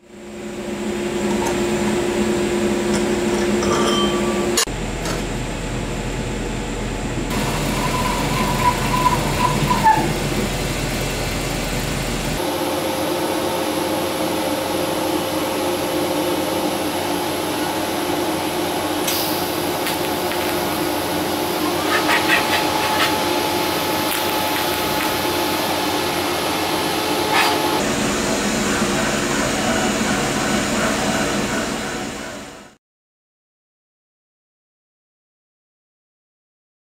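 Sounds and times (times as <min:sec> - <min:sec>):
metal lathe running: 0:07.3 - 0:32.5
drill squeal: 0:07.6 - 0:10.3
welding arc humming: 0:15.3 - 0:29.2
welding crackles: 0:19.8 - 0:20.8, 0:24.0 - 0:25.3.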